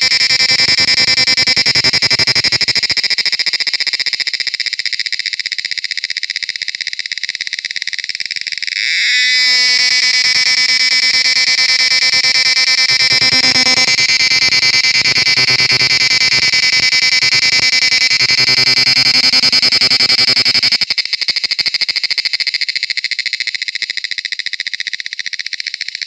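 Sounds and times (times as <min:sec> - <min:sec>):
cicada buzzing: 0:00.0 - 0:21.0.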